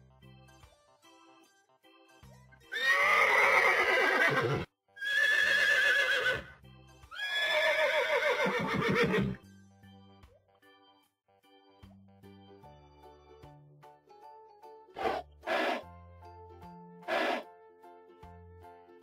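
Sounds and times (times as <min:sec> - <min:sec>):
soft background music: 0:00.0 - 0:19.0
horse whinnying: 0:02.7 - 0:06.5, 0:07.1 - 0:09.4, 0:15.0 - 0:15.8, 0:17.1 - 0:17.4.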